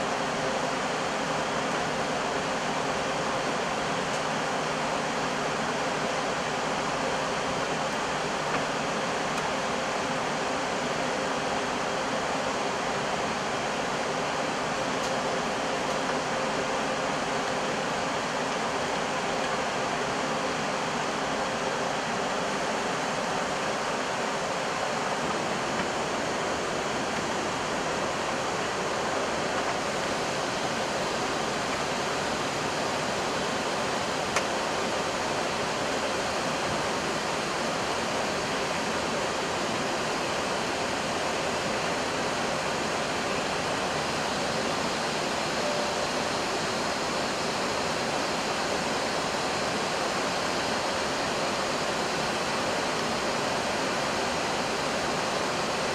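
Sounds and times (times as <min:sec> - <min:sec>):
cockpit air-conditioning: 0:00.0 - 0:55.9.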